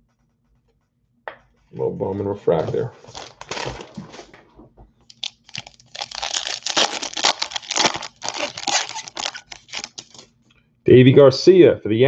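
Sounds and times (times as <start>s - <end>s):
foil wrapper tearing and crinkling: 3.0s - 4.0s, 5.1s - 10.3s.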